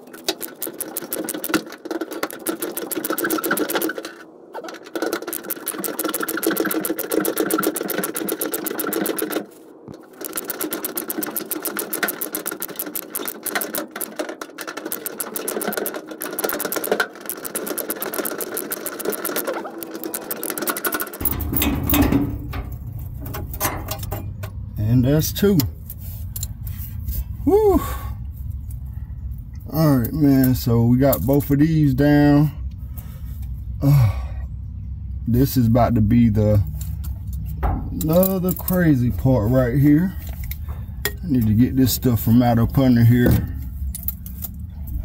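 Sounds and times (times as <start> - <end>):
steady hum: 14.9 - 45.0.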